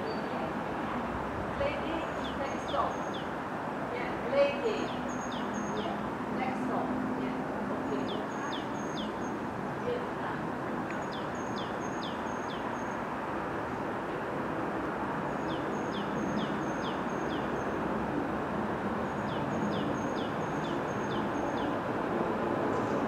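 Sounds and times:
songbird singing: 0.0 - 0.6, 1.5 - 3.4, 4.0 - 13.2, 15.2 - 17.9, 19.0 - 21.8.

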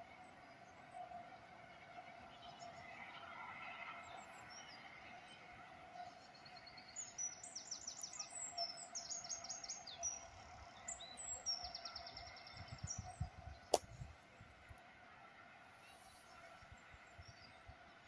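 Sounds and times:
songbirds trilling and chirping: 4.0 - 14.8, 15.4 - 18.0.

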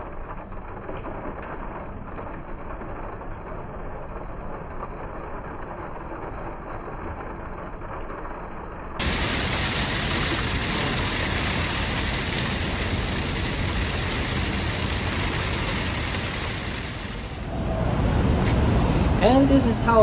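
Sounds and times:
rain hissing on metal roof: 0.0 - 6.8, 9.0 - 18.0
water running and dripping: 9.0 - 17.5.

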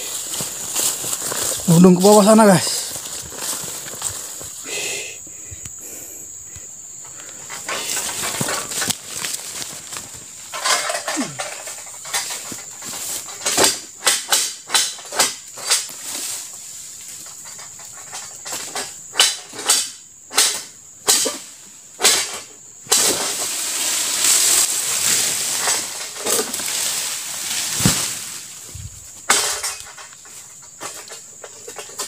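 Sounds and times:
leafy rustling: 0.0 - 4.8, 6.7 - 13.6, 15.6 - 18.7, 22.9 - 32.0.

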